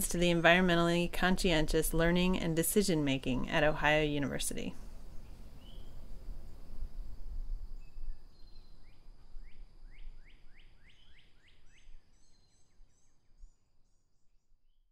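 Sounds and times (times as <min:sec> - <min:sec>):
songbird singing: 0:00.0 - 0:14.9.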